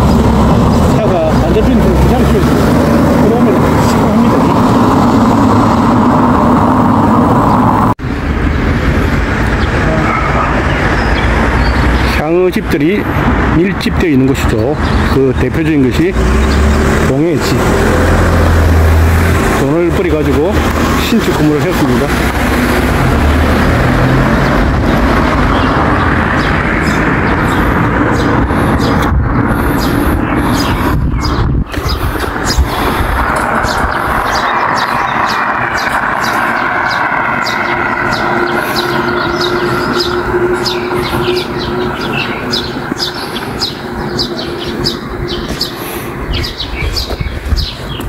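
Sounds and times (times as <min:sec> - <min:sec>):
outdoor rumble: 0:00.0 - 0:48.0
wind buffeting microphone: 0:00.0 - 0:48.0
small birds chirping: 0:09.4 - 0:17.7, 0:23.6 - 0:48.0.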